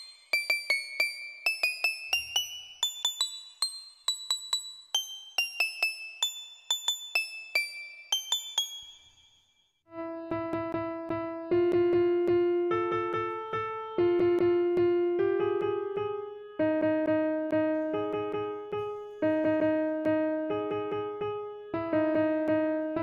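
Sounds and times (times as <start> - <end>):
keyboard tune with quick notes: 9.9 - 23.0.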